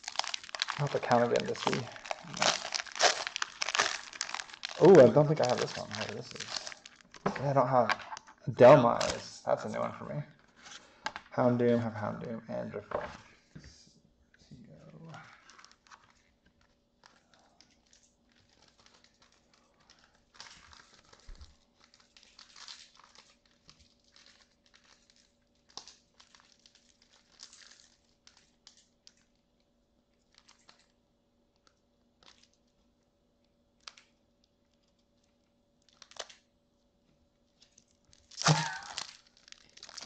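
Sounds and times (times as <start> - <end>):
wrappers and cards rustling: 0.0 - 11.6, 14.7 - 29.5, 30.1 - 31.0, 31.6 - 32.9, 33.8 - 36.5, 37.4 - 40.0
burst of laughter: 38.4 - 39.0.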